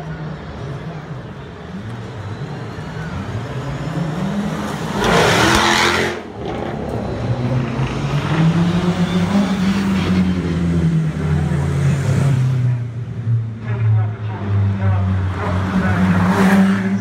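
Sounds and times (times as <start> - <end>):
car accelerating past: 4.0 - 10.8.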